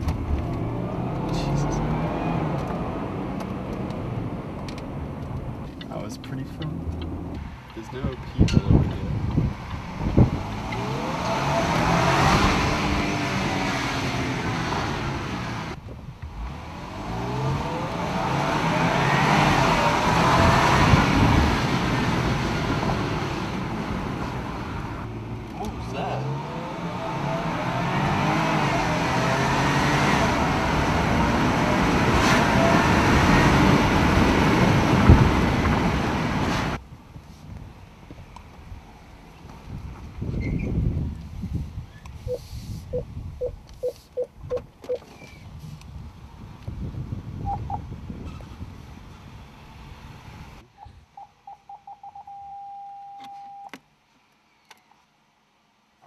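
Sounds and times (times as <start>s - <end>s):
car engine: 0.0s - 50.7s
road noise: 0.0s - 52.7s
parking sensor beeps: 42.3s - 45.0s, 47.4s - 47.8s, 51.2s - 53.7s.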